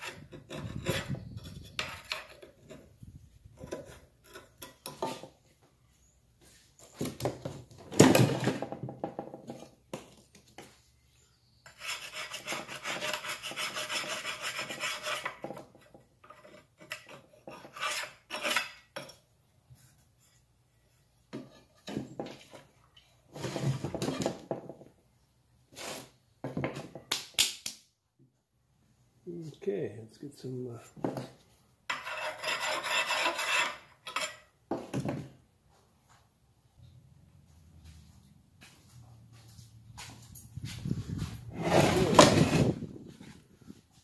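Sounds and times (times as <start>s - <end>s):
scraper scraping metal: 0.0s - 3.0s, 11.7s - 18.9s, 31.9s - 34.5s, 40.8s - 43.4s.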